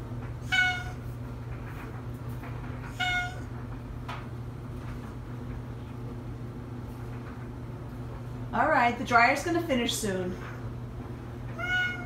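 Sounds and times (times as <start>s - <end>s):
clothes dryer humming: 0.0s - 12.0s
cat meowing: 0.4s - 1.1s, 2.9s - 3.5s, 11.5s - 12.0s.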